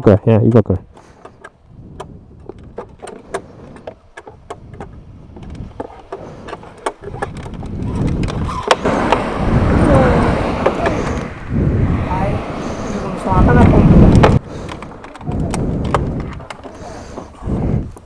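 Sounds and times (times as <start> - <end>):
wind and road noise: 0.0 - 18.0
motorcycle engine rumble: 0.8 - 18.0.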